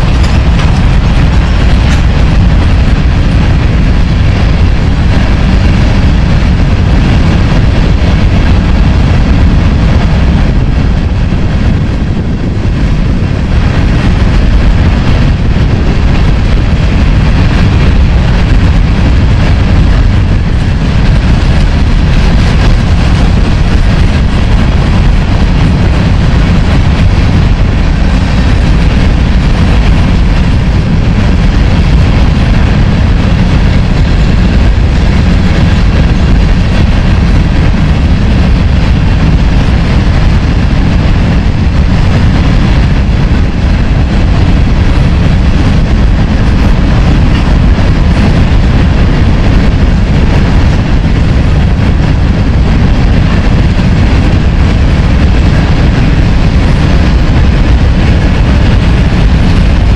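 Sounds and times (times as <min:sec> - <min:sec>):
steel wheels rumbling on rail: 0:00.0 - 0:59.9.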